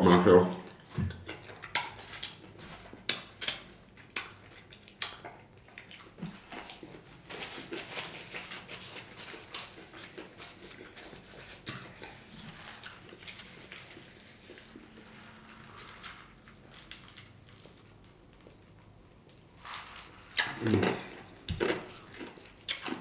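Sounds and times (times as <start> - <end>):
paper napkin rustling: 7.2 - 16.9.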